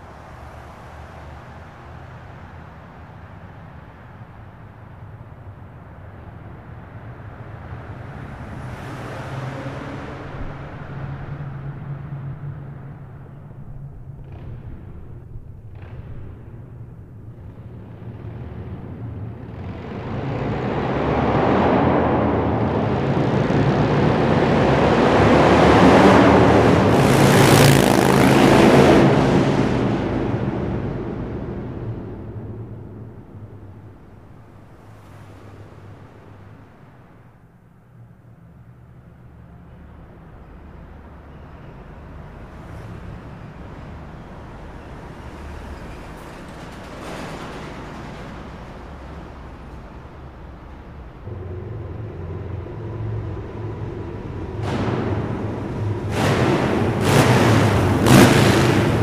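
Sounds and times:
motorcycle engine approaching: 0:10.3 - 0:34.1, 0:50.4 - 0:59.0.

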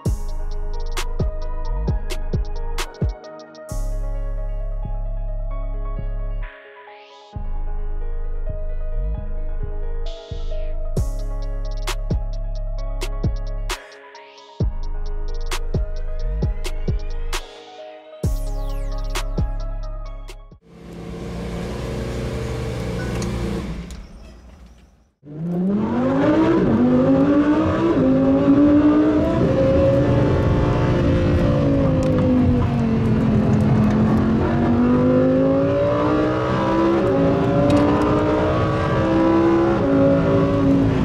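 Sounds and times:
car engine revving: 0:20.7 - 0:24.1, 0:25.2 - 0:41.0.

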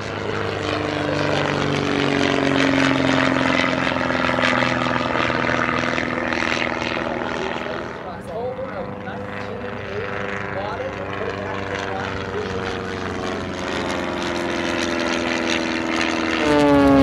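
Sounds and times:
propeller airplane flying past: 0:00.0 - 0:17.0.

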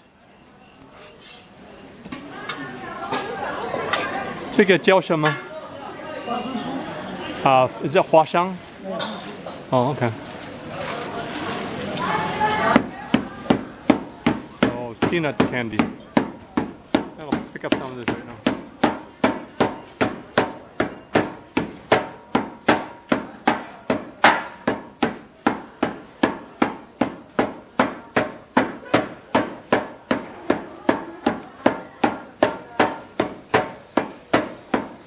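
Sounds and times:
wooden mallets pounding on metal plate: 0:12.7 - 0:35.0.

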